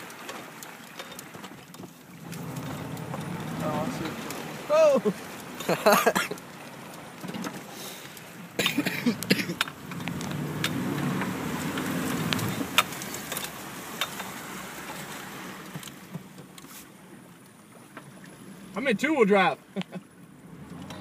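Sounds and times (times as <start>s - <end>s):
small knocks and rattles: 0.0s - 4.4s, 7.2s - 7.7s
water rushing and sloshing: 0.0s - 21.0s.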